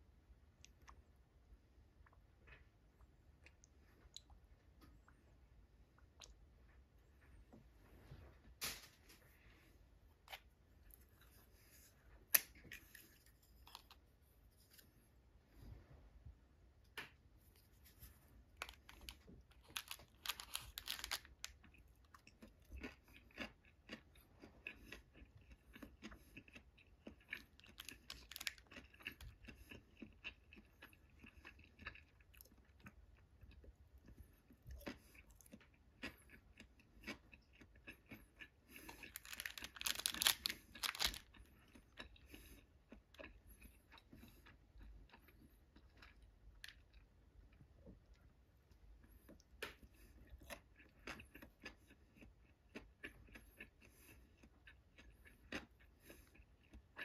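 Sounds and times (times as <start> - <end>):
person chewing food: 9.3 - 57.0
small clicks and crackles: 18.6 - 22.2, 27.6 - 29.3, 38.8 - 41.3.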